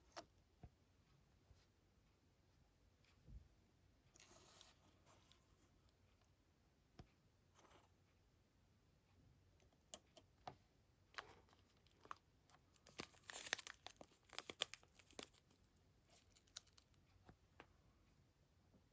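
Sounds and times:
packaging crinkling and tearing: 11.2s - 17.0s.

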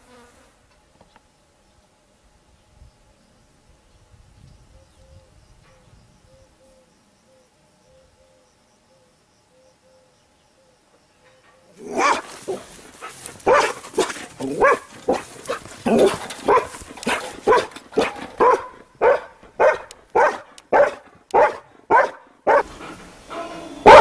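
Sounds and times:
dog barking: 11.8s - 22.7s, 23.3s - 24.0s.

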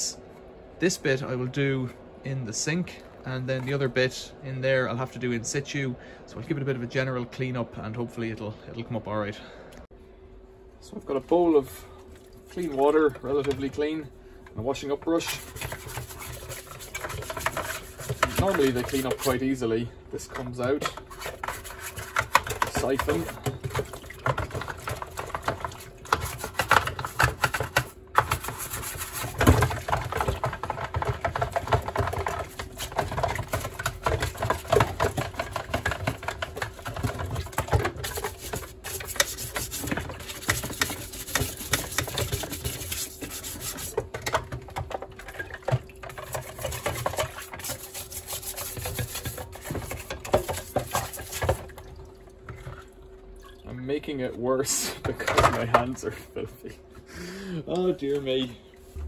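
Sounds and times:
brush scrubbing plastic: 14.6s - 51.8s.

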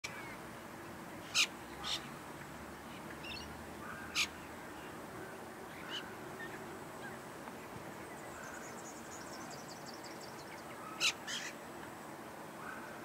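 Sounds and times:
sharp bird calls: 3.2s - 4.4s.

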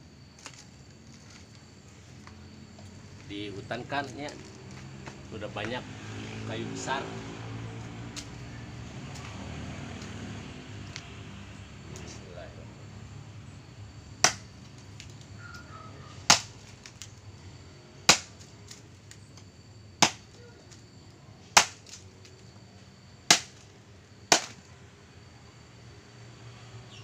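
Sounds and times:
machete chopping wood: 14.2s - 15.1s, 16.2s - 17.2s, 18.0s - 19.2s, 20.0s - 20.4s, 21.5s - 22.0s, 23.3s - 23.7s, 24.3s - 24.7s.

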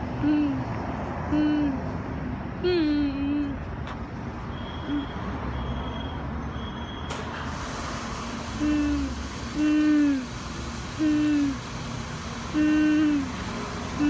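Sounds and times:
high electronic beeps: 4.5s - 7.1s
car wash rumble: 7.0s - 14.0s.

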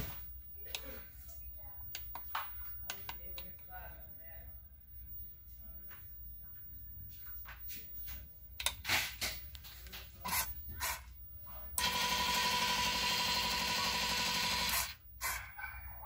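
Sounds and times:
stepper motor whine: 11.8s - 15.0s.

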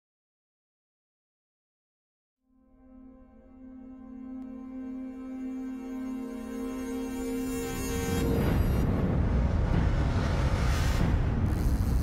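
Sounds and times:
ambient drone music: 2.5s - 12.0s
low rumble: 8.2s - 12.0s.

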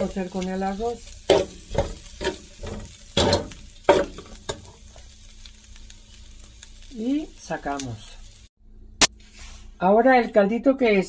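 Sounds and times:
sausage sizzling in oil: 0.0s - 8.5s.

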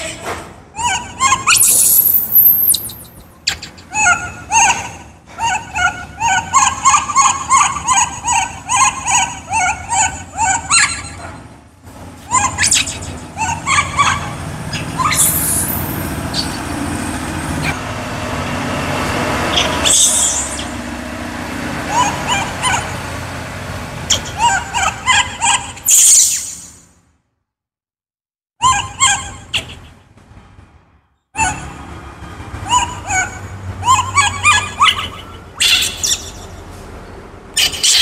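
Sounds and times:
baby monkey crying: 0.8s - 11.5s, 12.2s - 16.8s, 19.4s - 20.9s, 21.8s - 23.0s, 24.1s - 26.6s, 28.6s - 29.9s, 31.4s - 31.8s, 32.6s - 36.6s, 37.5s - 38.0s.

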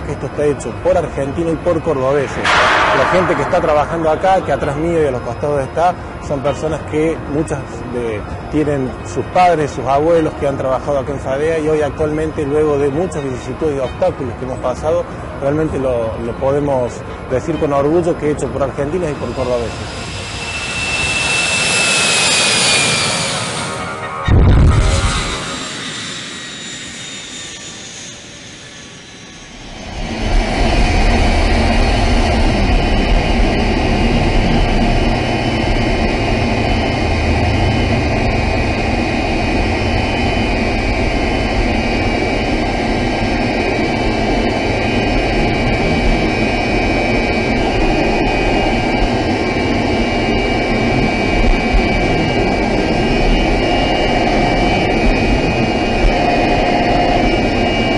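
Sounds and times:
jet engine taxiing: 0.0s - 57.9s
engine and airflow rush in cockpit: 19.0s - 57.9s.

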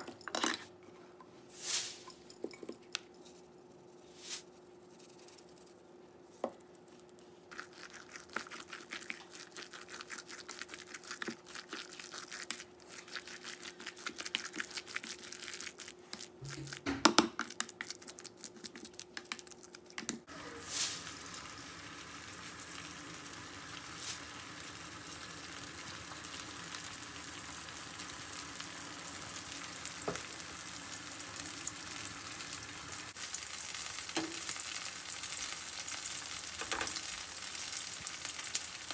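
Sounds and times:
pancakes sizzling in a pan: 20.3s - 38.9s.

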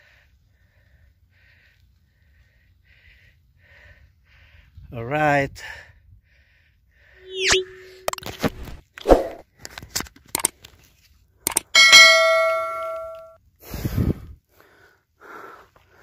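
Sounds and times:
swish: 9.0s - 9.4s
bell ding: 11.8s - 13.4s.

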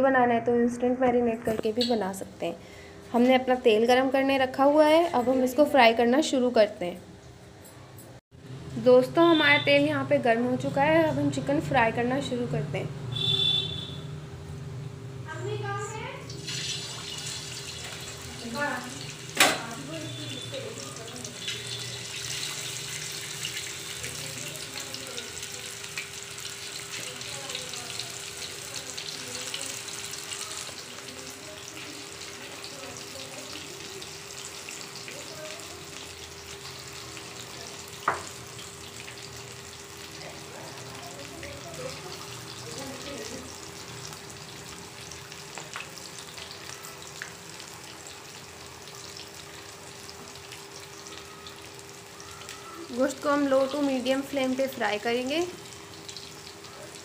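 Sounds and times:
chicken deep-frying in oil: 13.1s - 14.2s, 15.9s - 57.0s.

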